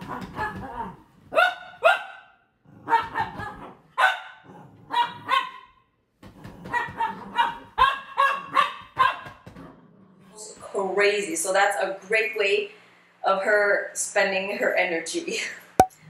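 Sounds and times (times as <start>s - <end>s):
dog barking: 1.3s - 5.8s, 6.7s - 9.4s.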